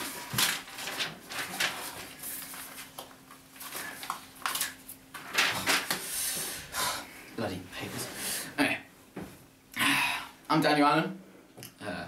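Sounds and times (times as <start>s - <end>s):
paper rustling: 0.0s - 6.1s
faint steady hum: 0.0s - 12.0s.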